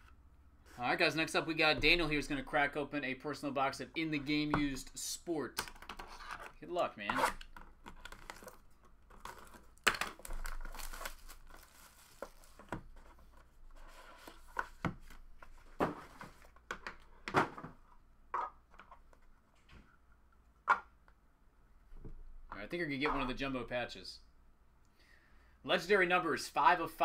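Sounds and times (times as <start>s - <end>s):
cardboard and wrapper rustling: 7.5s - 16.6s
wrapper tearing: 8.0s - 12.6s.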